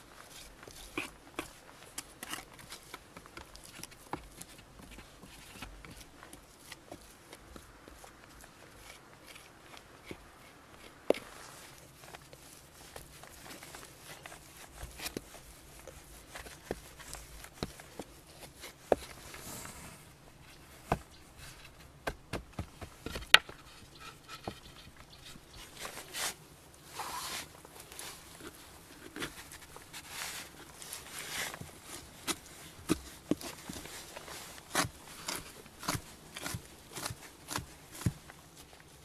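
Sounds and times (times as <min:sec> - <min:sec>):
hands working wet clay: 0:00.0 - 0:39.0
brushing scraping swishes: 0:10.4 - 0:20.8, 0:25.6 - 0:28.3.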